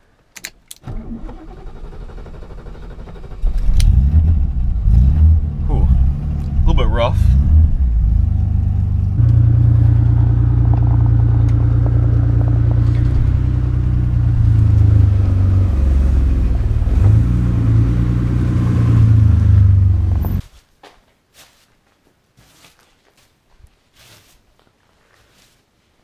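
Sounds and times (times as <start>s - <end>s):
car engine idling rough: 1.8s - 17.2s.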